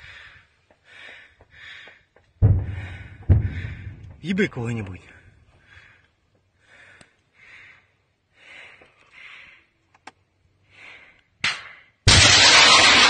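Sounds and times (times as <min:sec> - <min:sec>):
faint clicks: 0:06.3 - 0:07.3, 0:09.8 - 0:10.3.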